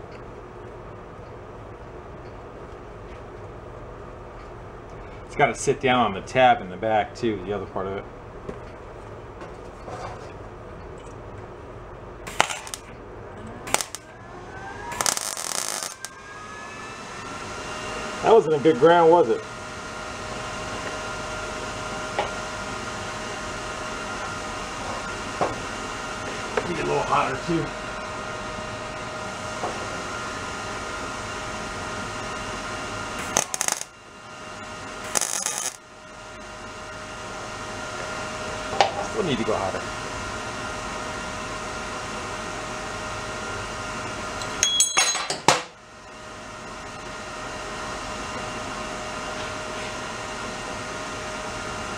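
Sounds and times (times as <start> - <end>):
steady hum: 0.0 - 45.0
electric welding arc bursts: 12.2 - 12.9, 13.6 - 14.1, 14.9 - 16.2, 33.1 - 34.0, 34.9 - 35.8.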